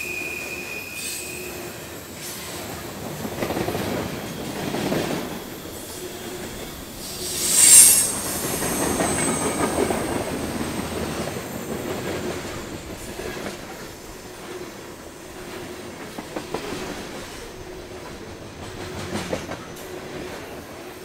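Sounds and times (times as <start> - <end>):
train wheels clattering on rails: 1.1 - 21.0
high-pitched wheel squeal: 6.6 - 11.3.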